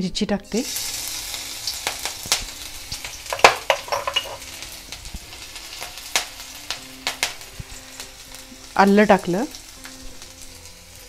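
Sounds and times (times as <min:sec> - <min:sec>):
chilli sizzling in hot oil: 0:00.4 - 0:11.0
spatula scraping and knocking pan: 0:03.3 - 0:04.5.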